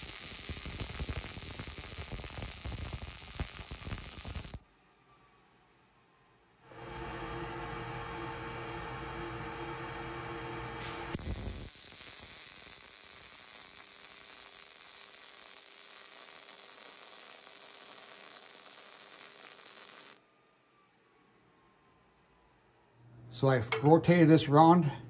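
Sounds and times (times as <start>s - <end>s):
welding arc hissing: 0.0s - 4.6s, 10.8s - 20.2s
hum with steady tones: 0.0s - 14.8s.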